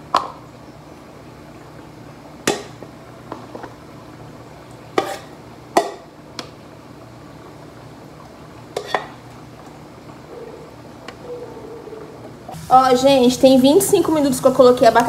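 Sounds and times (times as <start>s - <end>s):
metal ladle scraping a pot: 5.0s - 5.3s.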